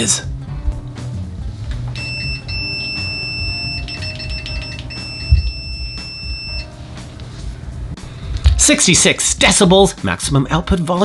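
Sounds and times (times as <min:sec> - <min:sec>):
multimeter continuity beep: 0:02.0 - 0:06.7.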